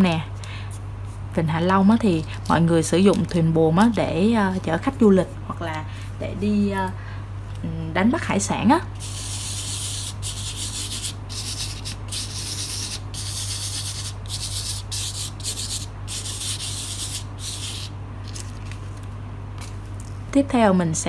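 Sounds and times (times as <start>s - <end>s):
palm rubbing sand on card: 9.0s - 17.9s.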